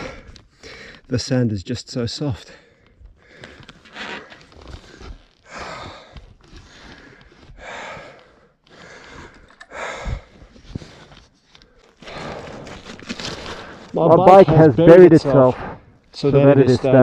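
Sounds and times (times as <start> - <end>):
man breathing hard: 0.0 - 1.1, 2.5 - 3.8, 4.7 - 12.8.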